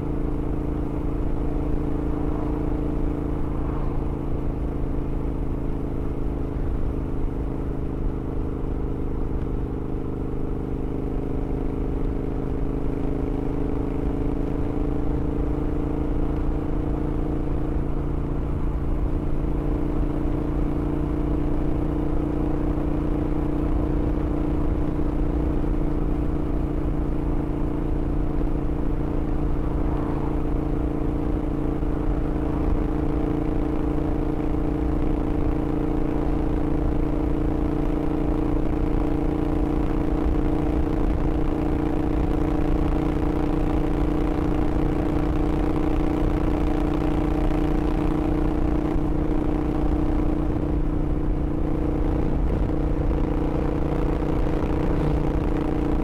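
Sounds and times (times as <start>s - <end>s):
motorcycle engine running steadily: 0.0s - 56.0s.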